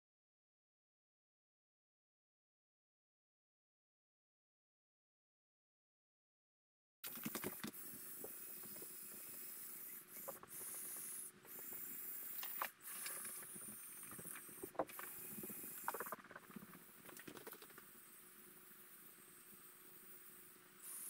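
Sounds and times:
plastic gears clicking: 7.0s - 17.9s
small electric motors whining: 7.1s - 21.0s.

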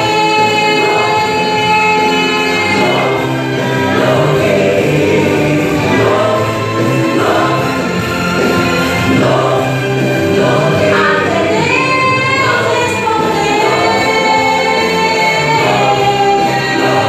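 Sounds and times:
musical accompaniment: 0.0s - 17.0s
woman singing gospel: 10.7s - 17.0s.

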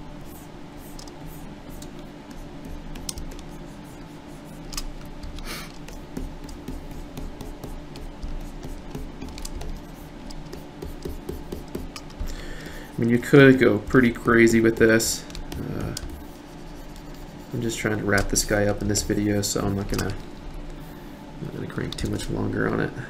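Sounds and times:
steady low hum: 0.0s - 23.0s
keyboard and mouse clicks: 8.6s - 11.2s.

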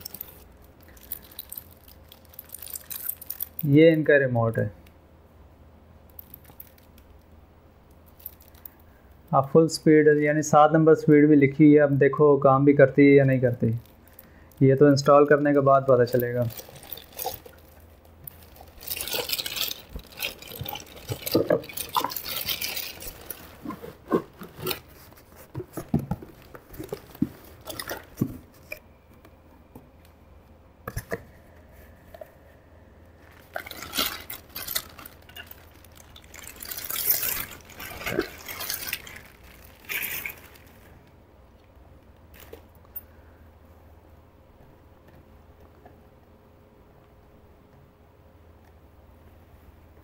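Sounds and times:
plastic bag crinkling: 0.0s - 3.7s, 8.1s - 8.8s, 13.4s - 28.8s, 33.2s - 41.1s, 42.3s - 42.7s.

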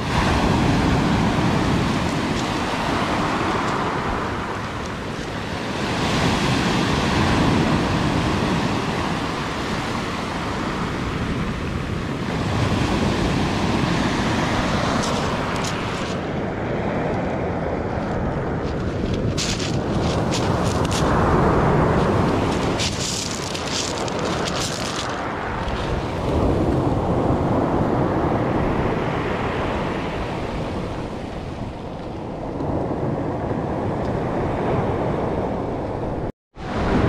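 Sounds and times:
surf washing up pebble beach: 0.0s - 16.4s, 18.9s - 31.7s.

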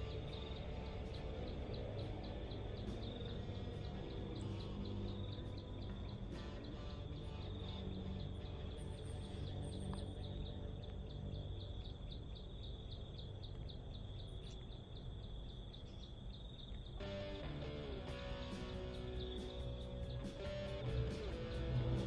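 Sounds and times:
guitar music: 17.0s - 22.0s.

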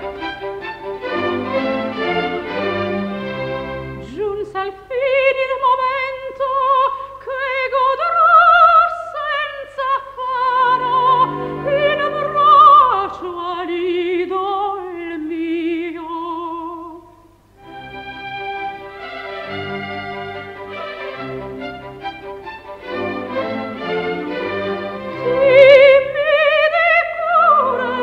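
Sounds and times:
quiet orchestral chords: 0.0s - 4.2s, 10.4s - 14.2s, 17.6s - 28.0s
soprano singing opera: 4.0s - 17.1s, 24.1s - 28.0s.

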